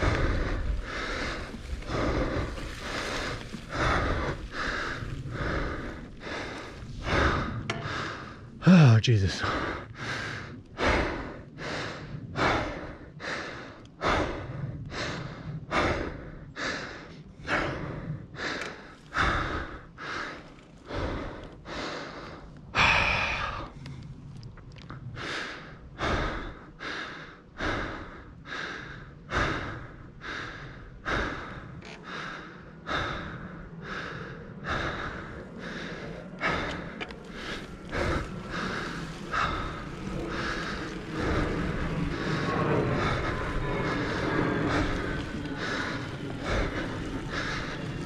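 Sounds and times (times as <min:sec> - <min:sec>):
person breathing hard: 0:00.0 - 0:24.1, 0:25.0 - 0:48.0.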